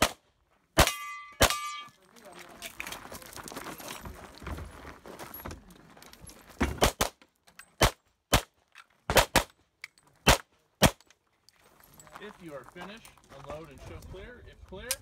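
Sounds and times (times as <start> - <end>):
handgun shots: 0.0 - 0.2, 0.8 - 1.9, 6.7 - 7.2, 7.8 - 9.6, 10.2 - 11.0.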